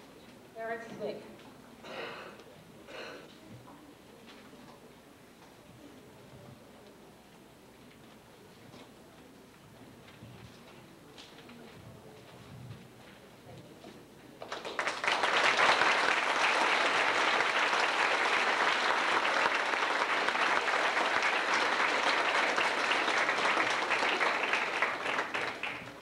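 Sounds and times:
audience applauding: 0:14.4 - 0:26.0.

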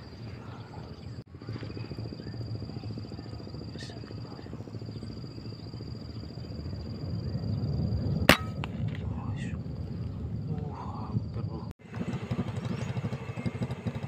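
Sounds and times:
steady low rumble: 0:00.0 - 0:11.8
air rifle shot: 0:08.3 - 0:08.8.

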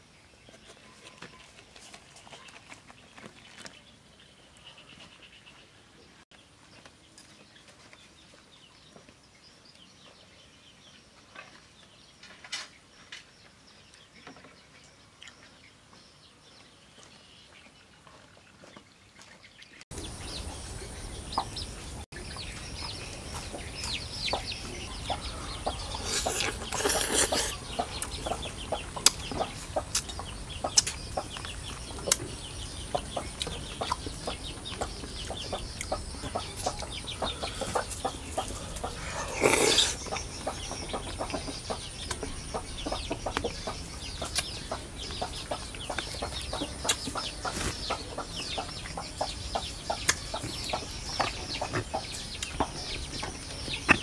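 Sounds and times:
chickens clucking: 0:19.9 - 0:54.0.

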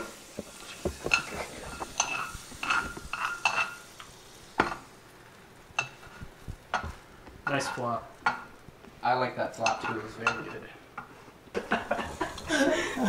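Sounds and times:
knife scraping in frying pan: 0:00.0 - 0:04.8.

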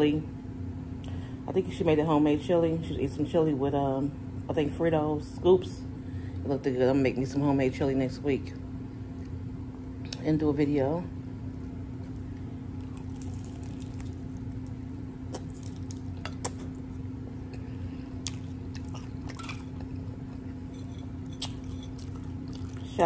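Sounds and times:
steady low hum: 0:00.0 - 0:23.0
wet chewing: 0:11.9 - 0:16.9, 0:17.5 - 0:20.5, 0:21.2 - 0:23.0
taco shell crunching: 0:11.9 - 0:17.0, 0:18.2 - 0:20.5, 0:21.2 - 0:23.0.

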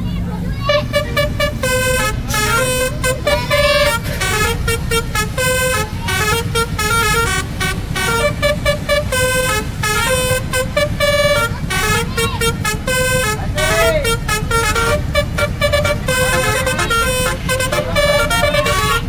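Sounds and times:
bus engine rumble: 0:00.0 - 0:19.0
multi-tone bus horn tune: 0:00.0 - 0:19.0.

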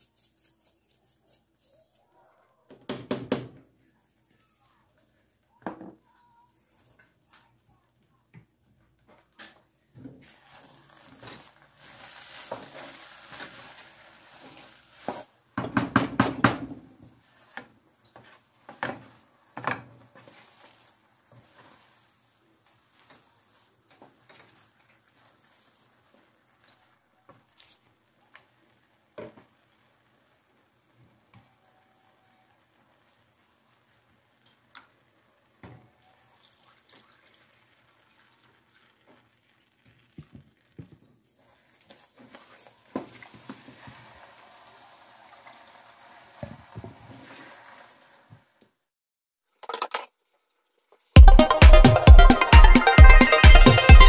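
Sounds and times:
liquid pouring and splashing: 0:10.2 - 0:15.1, 0:32.7 - 0:48.4
loud electronic music: 0:51.2 - 0:54.0.

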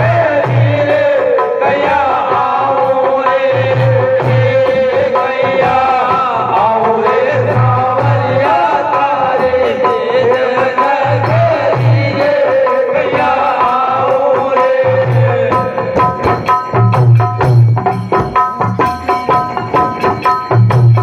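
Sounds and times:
person singing folk melody: 0:00.0 - 0:16.2
frame drum beats: 0:00.0 - 0:21.0.

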